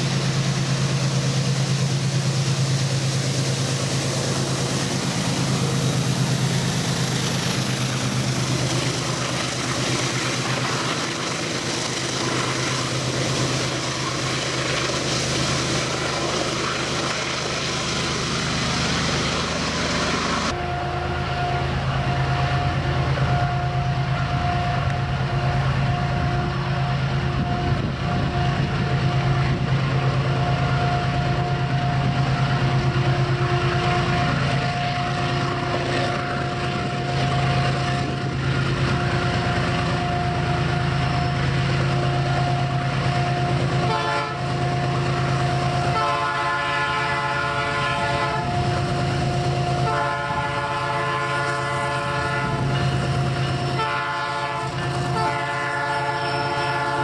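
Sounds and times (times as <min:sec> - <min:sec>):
steady higher tone: 0:00.0 - 0:43.8
locomotive engine drone: 0:00.0 - 0:57.0
wheel and rail noise: 0:00.0 - 0:57.0.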